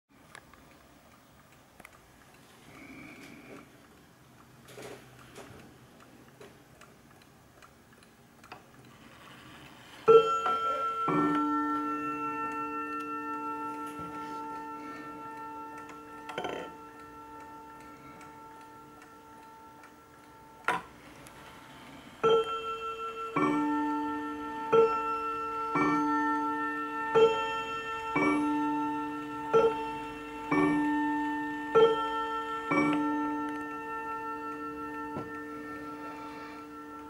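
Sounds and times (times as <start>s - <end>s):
faint clock ticking: 0.2s - 37.0s
clock two-tone ding-dong chime: 10.1s - 20.9s, 22.2s - 37.0s.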